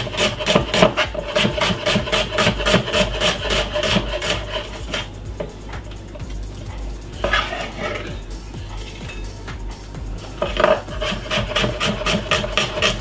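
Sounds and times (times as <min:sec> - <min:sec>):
knife chopping on wooden board: 0:00.0 - 0:05.1, 0:10.4 - 0:13.0.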